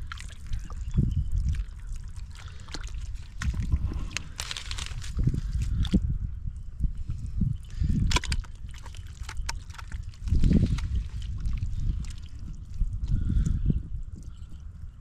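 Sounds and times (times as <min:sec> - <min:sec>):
hands sloshing in muddy water: 0:00.0 - 0:06.0, 0:08.1 - 0:13.3.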